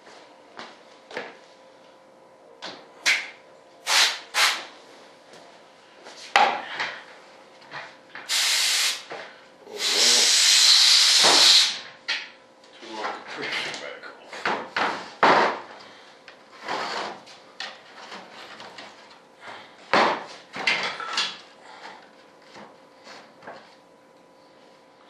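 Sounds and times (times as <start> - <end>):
spray gun hissing: 3.8 - 4.6, 8.3 - 9.0, 9.7 - 11.8.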